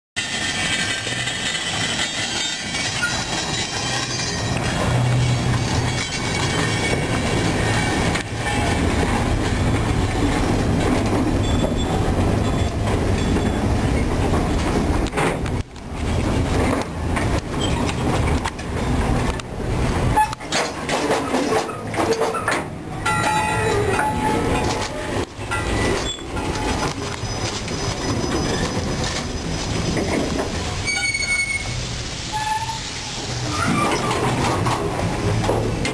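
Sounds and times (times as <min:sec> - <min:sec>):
high wheel squeal: 0:00.2 - 0:08.8, 0:25.5 - 0:30.1, 0:30.8 - 0:34.3
diesel locomotive engine hum: 0:00.2 - 0:35.9
train wheels rumbling and clicking: 0:00.2 - 0:35.9.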